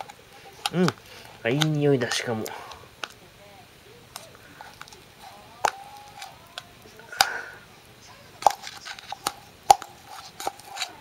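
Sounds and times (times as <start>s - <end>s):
spoon scraping metal can: 8.4s - 11.0s.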